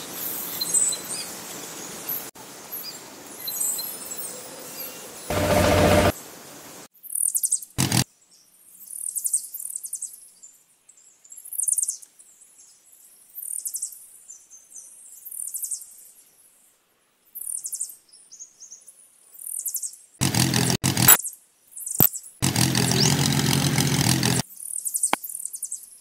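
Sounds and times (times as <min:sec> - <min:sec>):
loud burst of noise: 0:05.3 - 0:06.2
small birds chirping: 0:21.1 - 0:23.3, 0:24.5 - 0:26.0.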